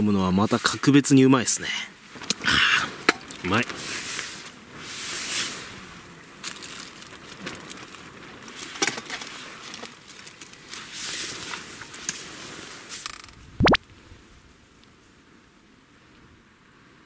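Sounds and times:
plastic bag rustling: 0:06.4 - 0:12.9.

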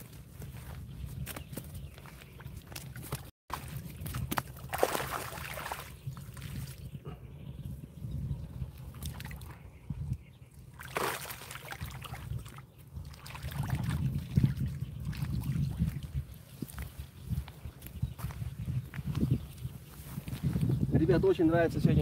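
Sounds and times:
water sloshing and splashing: 0:02.6 - 0:06.9, 0:10.7 - 0:16.3.

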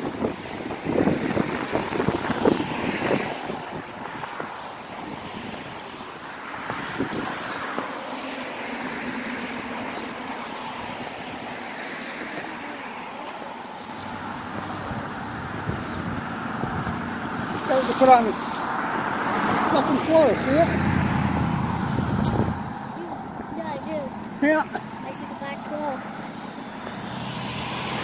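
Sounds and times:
wind rushing: 0:00.0 - 0:07.7, 0:14.1 - 0:23.6
road traffic: 0:00.0 - 0:28.0.

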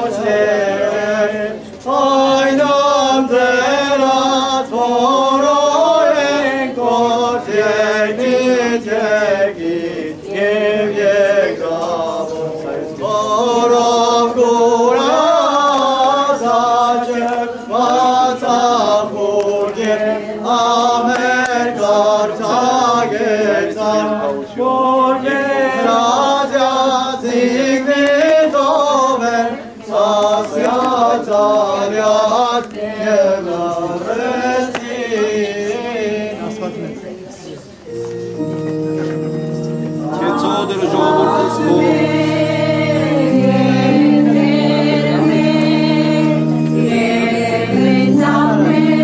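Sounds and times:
choir singing church chant: 0:00.0 - 0:37.1, 0:37.9 - 0:49.0.

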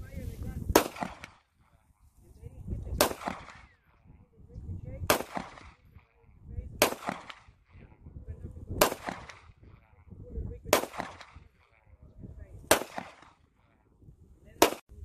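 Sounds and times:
pistol shots echoing: 0:00.8 - 0:01.4, 0:03.0 - 0:03.8, 0:05.0 - 0:06.2, 0:06.8 - 0:07.7, 0:08.8 - 0:09.6, 0:10.7 - 0:11.8, 0:12.7 - 0:13.4.

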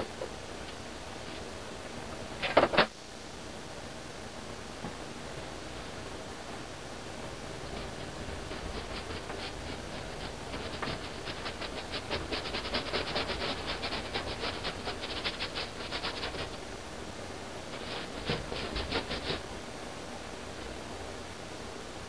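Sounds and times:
paintbrush strokes on canvas: 0:07.6 - 0:16.6, 0:17.7 - 0:19.5.

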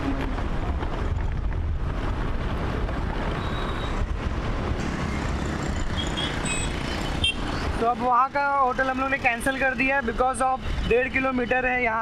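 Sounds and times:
wind buffeting microphone: 0:00.0 - 0:04.8
vehicle engine and road noise: 0:00.0 - 0:12.0.

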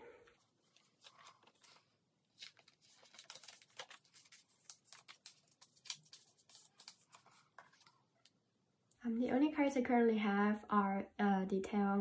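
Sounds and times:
plastic sleeves rustling and crinkling: 0:00.3 - 0:08.3.

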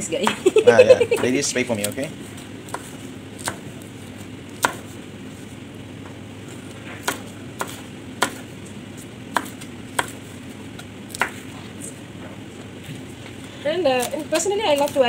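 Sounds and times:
steady low hiss: 0:00.0 - 0:15.0
knife striking cutting board: 0:04.6 - 0:04.8, 0:07.0 - 0:08.4, 0:09.3 - 0:10.2.

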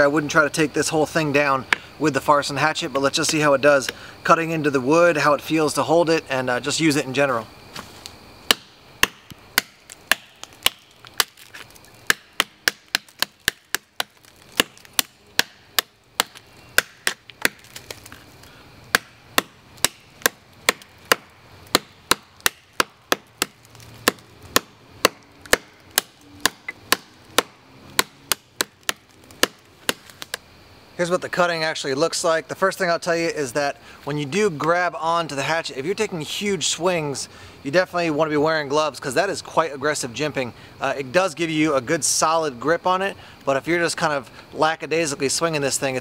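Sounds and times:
hatchet chopping log: 0:07.8 - 0:18.2, 0:18.9 - 0:30.4.

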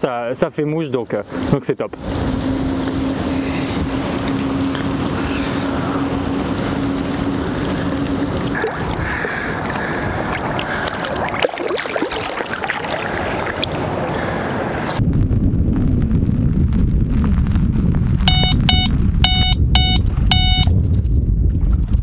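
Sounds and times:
wind buffeting microphone: 0:01.3 - 0:22.0
bite alarm high beeps: 0:18.3 - 0:20.7.

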